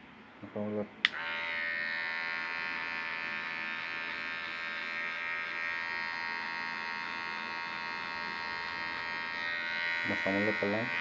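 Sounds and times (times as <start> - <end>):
hair clipper humming: 1.0 - 11.0.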